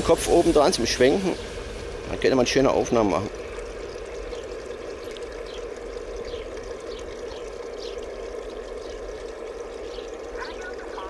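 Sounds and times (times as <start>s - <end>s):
running water: 0.0s - 11.0s.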